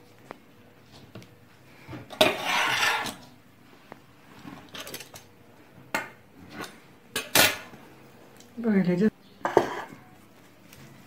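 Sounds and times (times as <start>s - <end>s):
clattering and scraping: 1.9s - 3.3s.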